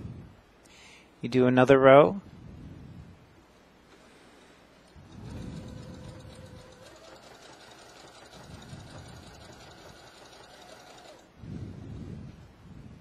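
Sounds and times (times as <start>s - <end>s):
sewing machine stitching: 5.0s - 11.3s.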